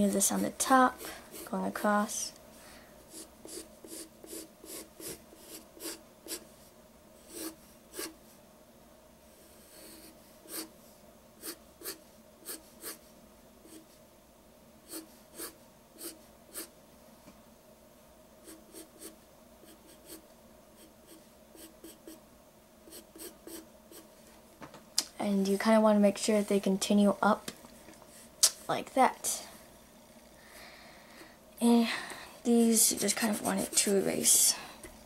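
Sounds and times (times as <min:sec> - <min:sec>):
pencil sketching on paper: 0:00.0 - 0:01.8, 0:03.1 - 0:06.4, 0:07.2 - 0:08.2, 0:09.4 - 0:10.7, 0:11.4 - 0:13.9, 0:14.9 - 0:16.7, 0:18.4 - 0:20.2, 0:20.8 - 0:22.2, 0:22.9 - 0:24.1, 0:32.6 - 0:34.5.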